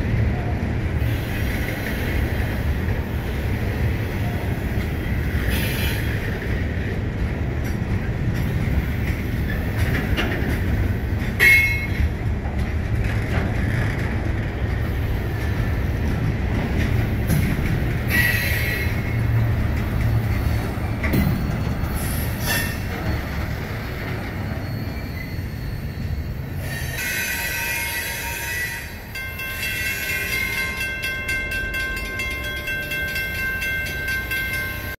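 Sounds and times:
train wheels rumbling on rail: 0:00.0 - 0:35.0
high wheel squeals: 0:23.6 - 0:30.7.

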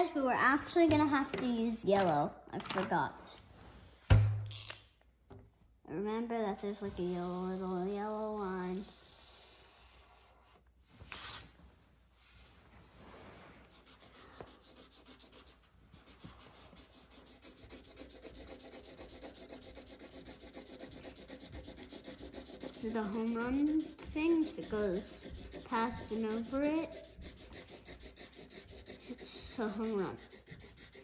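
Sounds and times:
marker rubbing on paper: 0:06.8 - 0:11.5, 0:13.6 - 0:31.0.

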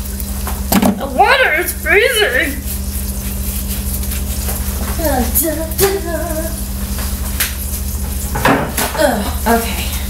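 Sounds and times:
steady low hum: 0:00.0 - 0:10.0
woman humming: 0:05.0 - 0:06.6, 0:08.9 - 0:09.8.

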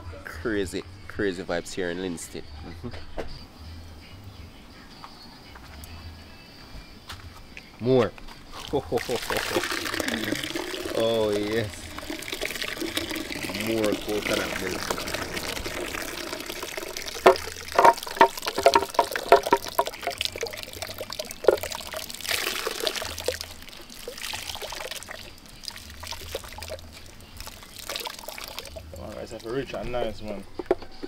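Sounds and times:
liquid pouring and dripping into pot: 0:08.6 - 0:30.8
sharp splashes: 0:09.0 - 0:28.9.

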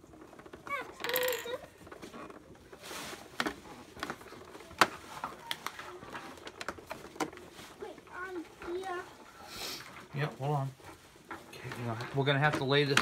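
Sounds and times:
plastic toy pieces clicking: 0:00.4 - 0:01.7
rustling scrape: 0:02.0 - 0:12.5.

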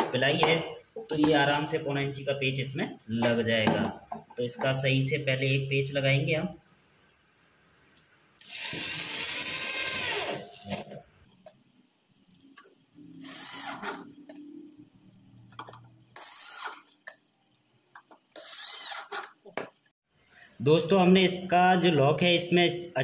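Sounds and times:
electric drill motor whining: 0:08.4 - 0:10.8, 0:13.2 - 0:14.2, 0:16.2 - 0:16.8, 0:18.3 - 0:19.4.

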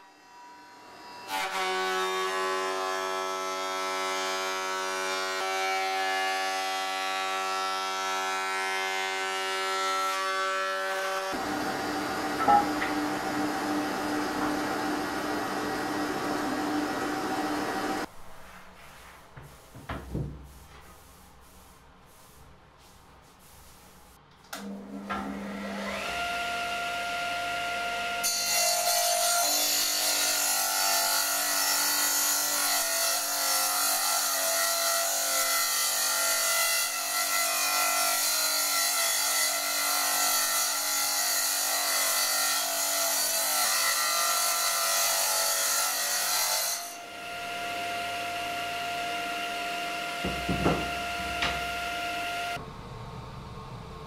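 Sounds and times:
saw cutting wooden board: 0:00.8 - 0:18.1, 0:24.6 - 0:52.6
table saw blade whining: 0:10.9 - 0:18.1, 0:41.6 - 0:52.6
knocks: 0:19.4 - 0:20.5, 0:50.2 - 0:51.6.

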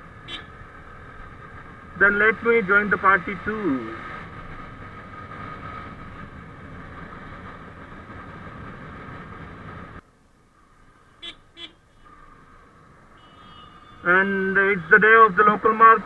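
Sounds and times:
motorcycle engine and road noise: 0:00.0 - 0:16.0.

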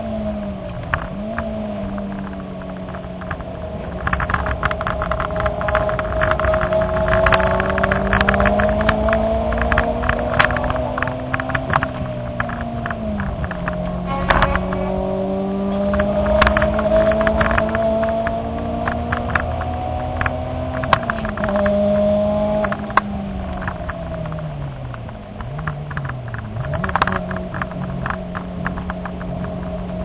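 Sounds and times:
car engine revving: 0:00.0 - 0:30.0.

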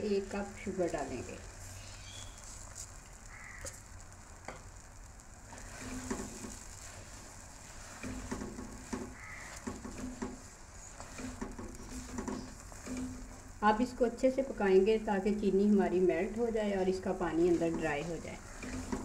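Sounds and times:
food sizzling: 0:00.0 - 0:19.0
spatula scraping a pot: 0:05.5 - 0:13.6, 0:17.3 - 0:19.0.

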